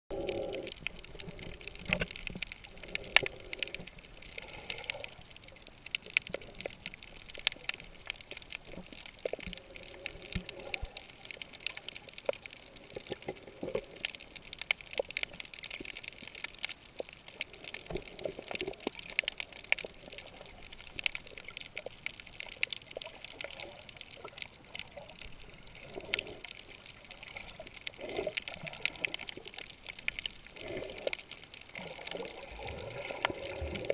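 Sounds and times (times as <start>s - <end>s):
underwater water hiss: 0.1s - 5.5s, 9.4s - 12.1s
sharp underwater clicks and crackles: 0.1s - 33.9s
water gurgling: 0.1s - 33.9s.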